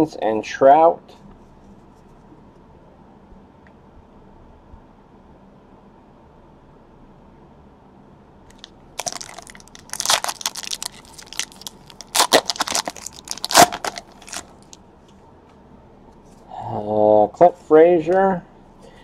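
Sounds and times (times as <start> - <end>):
foil wrapper tearing and crinkling: 8.5 - 14.8.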